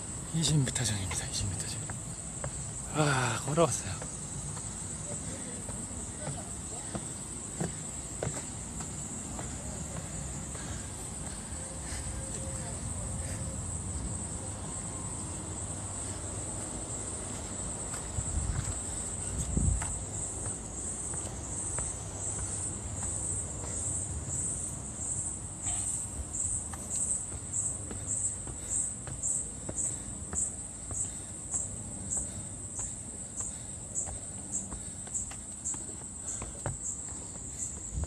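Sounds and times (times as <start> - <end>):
pulsing insect call: 0.0 - 38.0.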